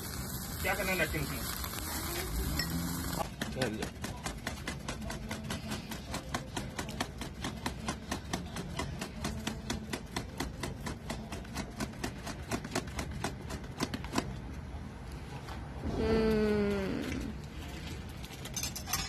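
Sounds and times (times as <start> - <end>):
charcoal crackling and popping: 0.0 - 14.7.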